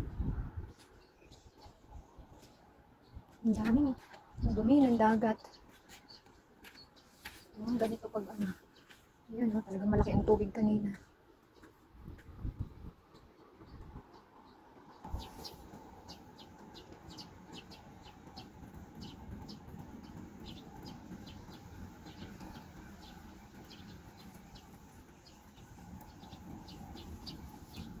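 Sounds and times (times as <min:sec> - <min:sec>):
wind rumble on microphone: 0:00.0 - 0:02.4, 0:03.0 - 0:05.2, 0:09.6 - 0:11.0, 0:11.9 - 0:14.2, 0:15.0 - 0:28.0
small birds chirping: 0:00.1 - 0:28.0.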